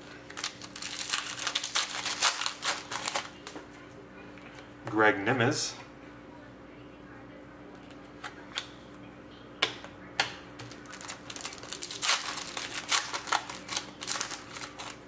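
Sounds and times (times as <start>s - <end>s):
foil pack tearing and crinkling: 0.3s - 3.5s, 10.7s - 15.0s.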